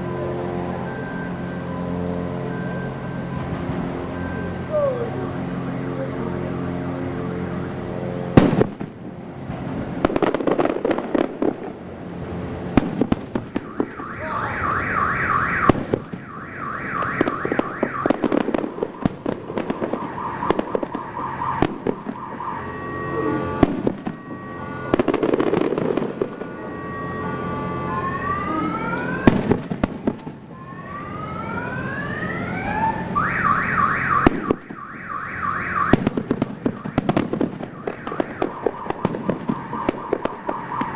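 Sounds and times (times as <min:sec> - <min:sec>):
fireworks bangs: 0:00.4 - 0:40.9.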